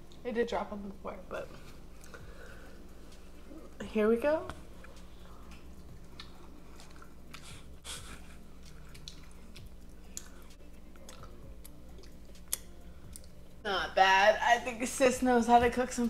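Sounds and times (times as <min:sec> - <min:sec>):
low steady hum: 0:00.0 - 0:16.0
person chewing: 0:04.7 - 0:13.6
mouth clicks and smacks: 0:05.5 - 0:13.4.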